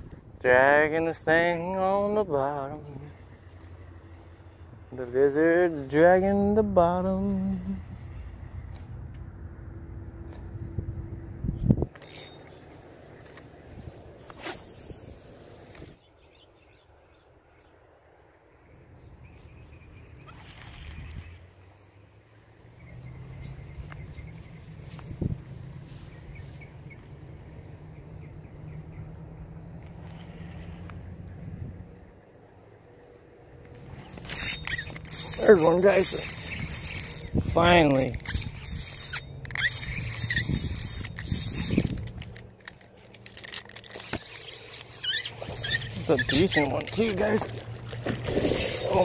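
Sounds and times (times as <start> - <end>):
wind rumbling on microphone: 6.4 - 12.2, 19.0 - 21.5, 22.8 - 32.2, 33.8 - 42.5
sharp clicks: 33.6 - 49.0.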